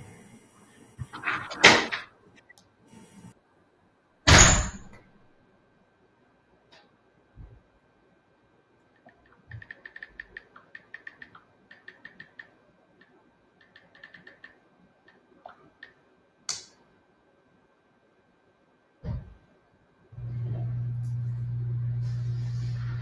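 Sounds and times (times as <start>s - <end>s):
phone keyboard clicks: 9.0s - 15.2s.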